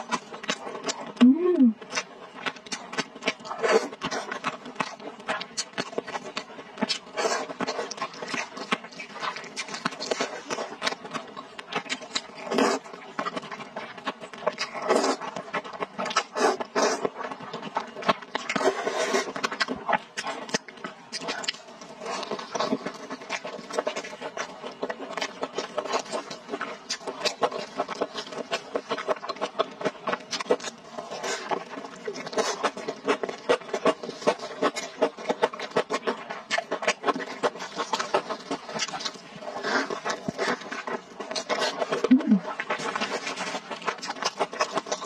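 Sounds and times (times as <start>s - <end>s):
wet chewing and lip smacks: 1.8s - 45.0s
slurping noodles: 14.6s - 15.3s, 30.3s - 45.0s.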